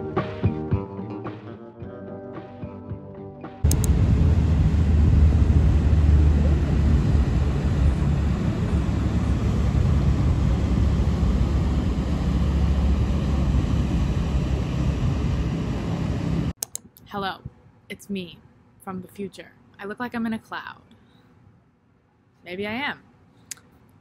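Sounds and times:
ferry engine rumble: 3.6s - 16.6s
rush of boat wake: 3.7s - 16.5s.

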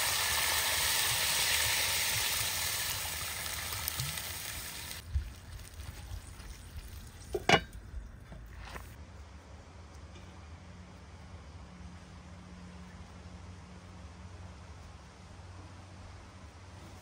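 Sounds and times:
food sizzling in oil: 0.0s - 7.6s.

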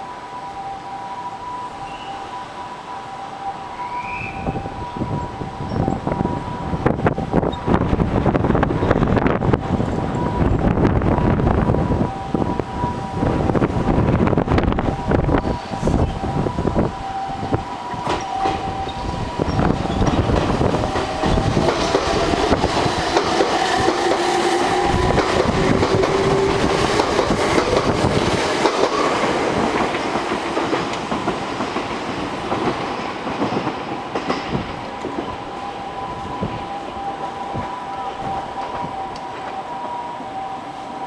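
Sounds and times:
level-crossing warning bell: 0.0s - 41.0s
train motor whine: 3.5s - 29.6s
train wheels clattering over rail joints: 17.8s - 35.4s.

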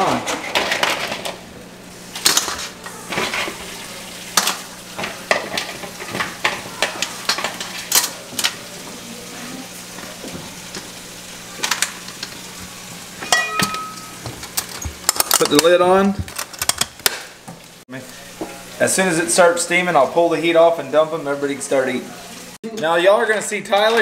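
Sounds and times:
light sizzle: 0.8s - 24.0s
utensil clinking and scraping pan: 13.2s - 15.7s.

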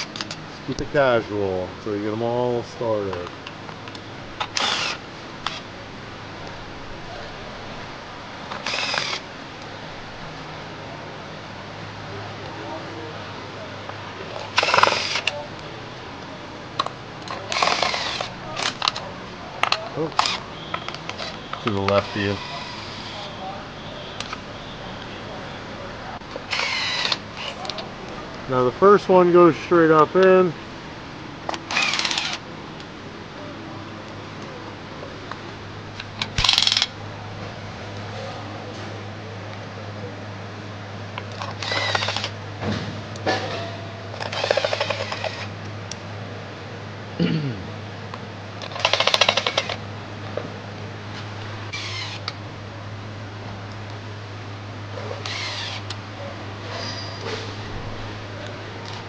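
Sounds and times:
rapid ratchet clicking: 4.4s - 5.6s, 8.5s - 9.2s, 14.6s - 15.4s, 17.2s - 19.0s, 21.0s - 23.2s, 26.5s - 27.7s, 31.5s - 32.4s, 36.2s - 36.9s, 41.4s - 42.4s, 44.2s - 45.5s, 48.6s - 49.8s, 51.7s - 52.4s, 55.2s - 56.0s
hand tools clicking on bolts: 14.6s - 15.4s, 36.0s - 36.9s, 44.2s - 45.5s, 48.6s - 49.8s.

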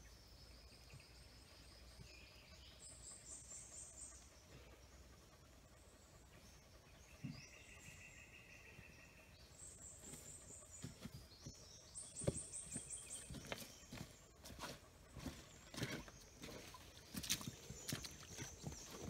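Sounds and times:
footsteps on forest floor: 10.0s - 19.0s.

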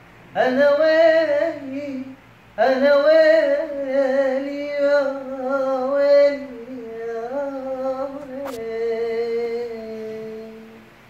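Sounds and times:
man singing unaccompanied: 0.3s - 11.0s
sharp click: 8.4s - 8.7s.

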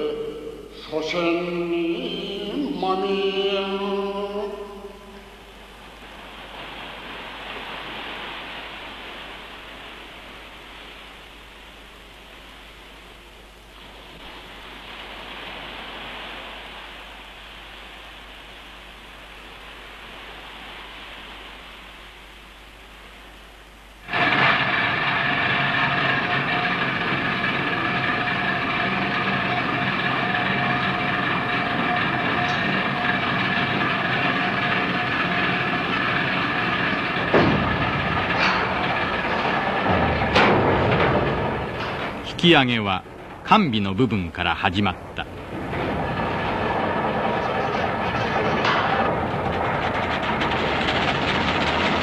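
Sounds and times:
heavy machinery droning: 0.0s - 6.9s, 24.0s - 52.0s
faint steady hiss: 0.0s - 49.2s
held whining tones: 24.0s - 52.0s
falling whines: 24.1s - 51.4s.

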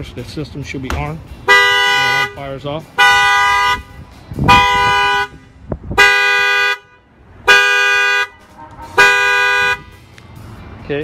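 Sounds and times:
car alarm horn blasts: 1.4s - 2.4s, 3.0s - 10.0s.

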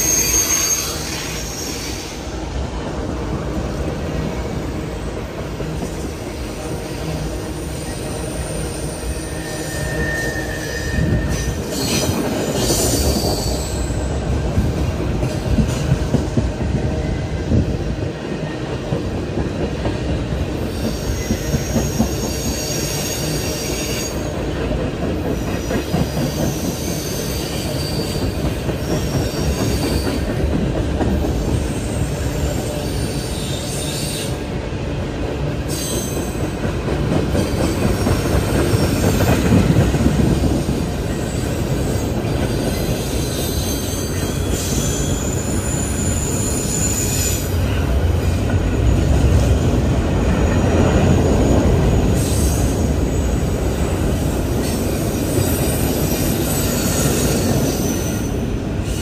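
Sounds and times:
high wheel squeal: 0.0s - 2.3s, 6.6s - 14.1s, 20.6s - 24.3s, 25.6s - 30.3s, 31.3s - 34.4s, 40.5s - 47.8s, 54.5s - 59.0s
train wheels rumbling on rail: 0.0s - 59.0s.

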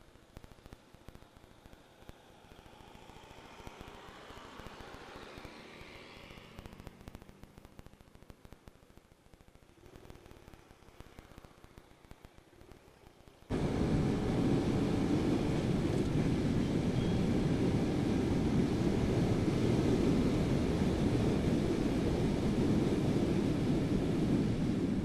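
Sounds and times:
motorcycle engine and road noise: 1.8s - 8.7s, 13.5s - 25.0s
wind rush on microphone: 13.5s - 25.0s.

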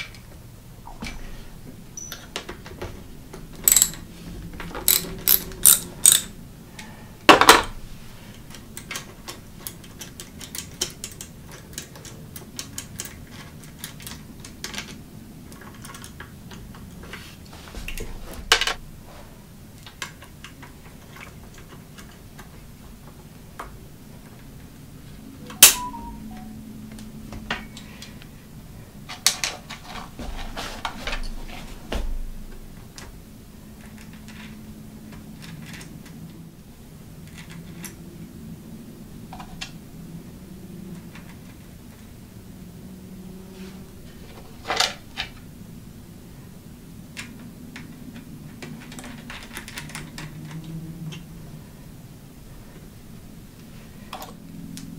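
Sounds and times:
metal clicks and clinks: 3.6s - 4.0s, 4.8s - 6.3s
brief metallic ring: 25.5s - 26.5s.

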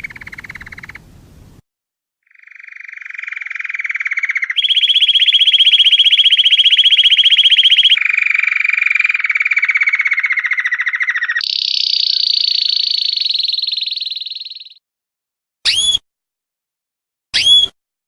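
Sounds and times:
canary singing fast trills: 0.0s - 1.0s, 2.3s - 14.8s.

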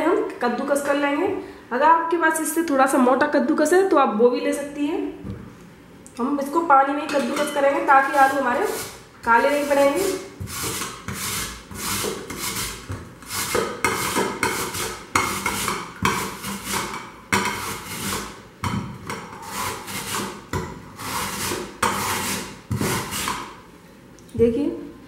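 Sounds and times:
potato rasped on metal grater: 7.9s - 16.9s, 17.5s - 18.4s, 19.4s - 20.4s, 21.0s - 23.4s.

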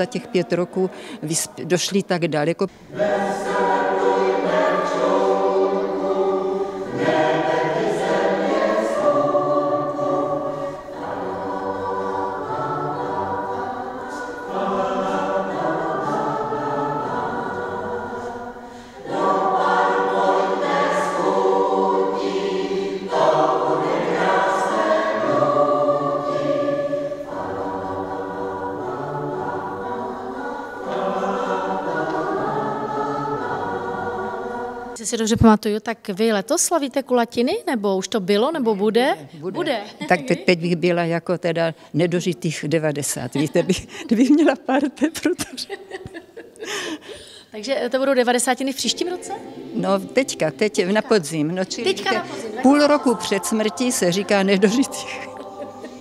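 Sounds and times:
mixed choir singing: 0.0s - 1.4s, 2.8s - 35.0s, 43.0s - 44.7s, 48.5s - 56.0s.

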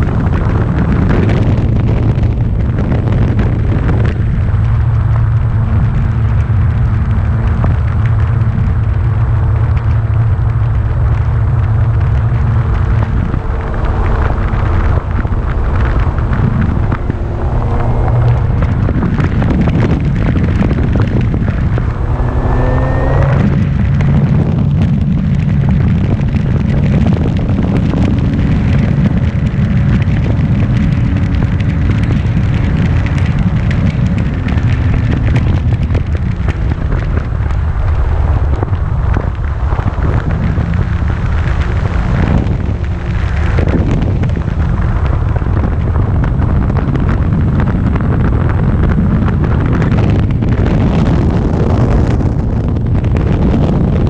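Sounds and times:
wind buffeting microphone: 0.0s - 54.0s
motor hum: 3.1s - 27.7s.

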